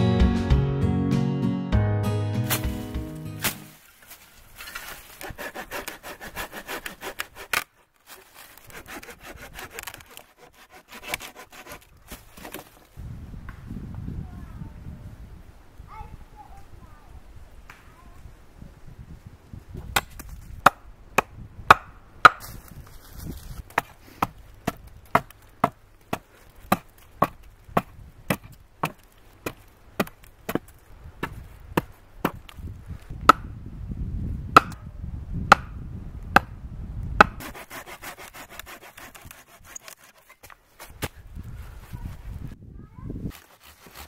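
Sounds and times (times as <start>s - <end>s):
hatchet chopping wood: 2.5s - 2.8s, 5.2s - 11.8s, 19.9s - 22.5s, 23.8s - 32.6s, 33.2s - 33.5s, 34.6s - 34.8s, 35.5s - 35.7s, 37.2s - 41.2s, 43.3s - 44.0s
rustling: 2.5s - 6.0s, 22.4s - 27.6s.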